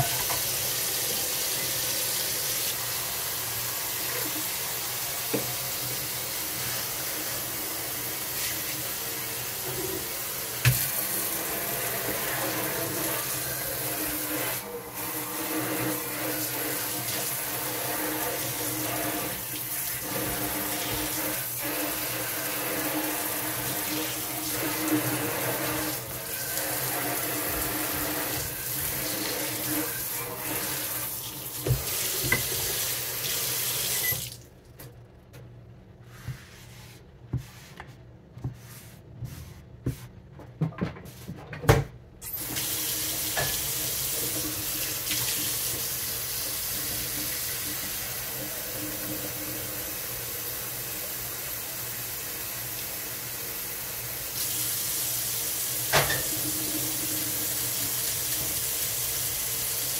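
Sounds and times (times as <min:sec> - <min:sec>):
tap running into a sink: 0:10.6 - 0:11.0, 0:31.6 - 0:32.8, 0:42.5 - 0:43.8, 0:55.9 - 0:56.5.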